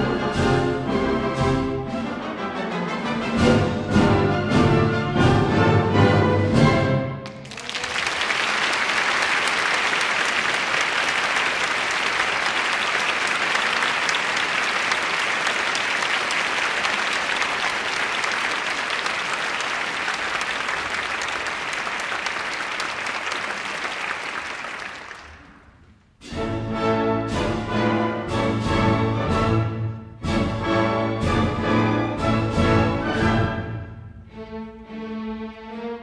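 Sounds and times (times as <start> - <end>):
orchestra music: 0.0 - 36.0
audience applauding: 7.2 - 25.7.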